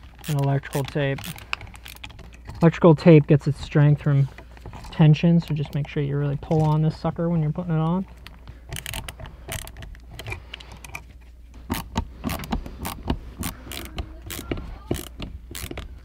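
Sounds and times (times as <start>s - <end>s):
screwdriver clicks and scrapes: 11.7s - 16.0s.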